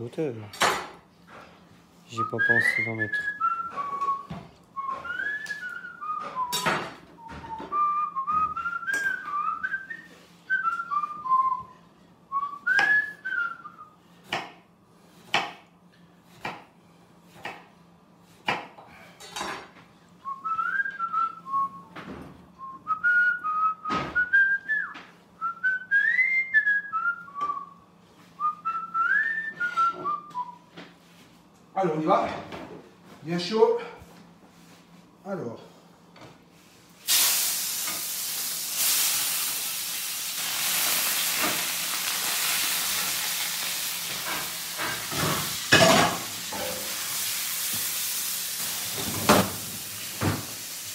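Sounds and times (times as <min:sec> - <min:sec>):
person whistling: 0:02.2 - 0:06.6, 0:07.2 - 0:14.0, 0:20.2 - 0:22.0, 0:22.6 - 0:27.8, 0:28.4 - 0:30.6.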